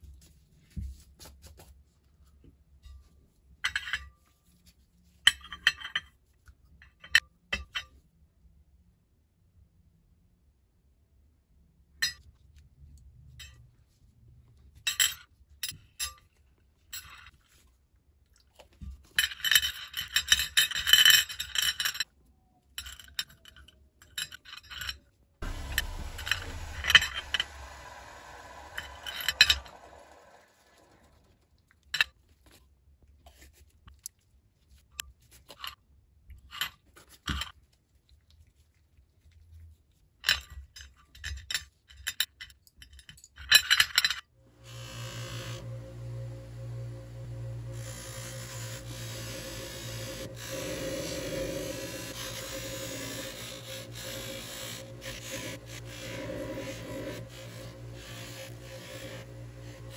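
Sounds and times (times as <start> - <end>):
metal parts clinking on ceramic plate: 19.2 - 22.1
steady hiss: 25.4 - 31.1.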